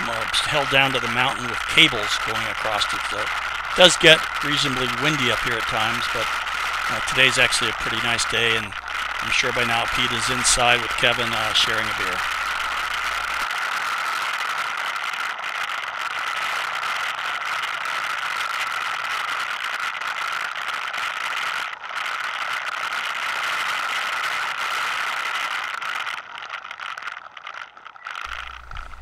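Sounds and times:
quad bike engine: 0:00.0 - 0:13.5, 0:28.3 - 0:29.0.

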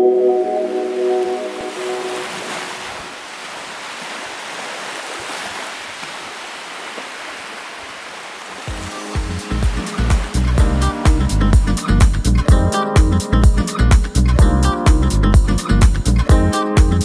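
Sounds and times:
sea surf washing on beach: 0:00.5 - 0:12.0.

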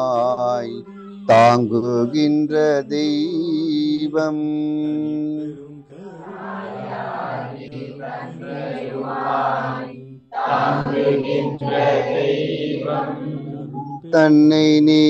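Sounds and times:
group of voices chanting: 0:05.9 - 0:14.0.

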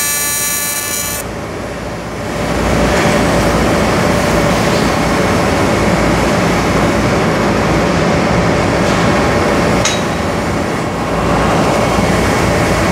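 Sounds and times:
welding arc hissing: 0:00.0 - 0:01.2.

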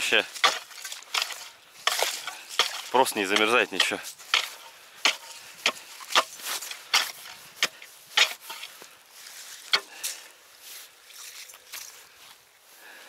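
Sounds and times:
ice chisel chopping ice: 0:00.3 - 0:08.7.

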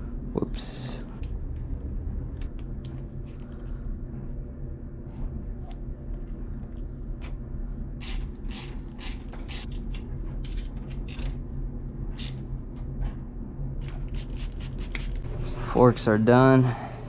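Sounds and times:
steady low hum: 0:00.0 - 0:17.0
hand ratchet clicking: 0:08.0 - 0:09.8, 0:12.2 - 0:12.4.

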